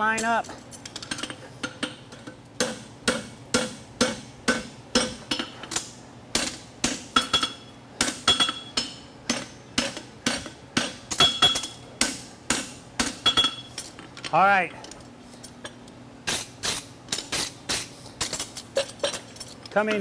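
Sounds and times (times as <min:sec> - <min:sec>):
hammer striking horseshoe on anvil: 0:02.6 - 0:13.7.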